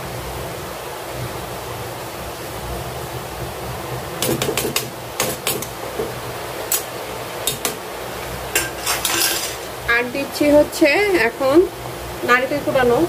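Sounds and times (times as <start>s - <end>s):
steady hiss: 0.0s - 13.0s
metal spoon scraping a pan: 8.5s - 9.8s.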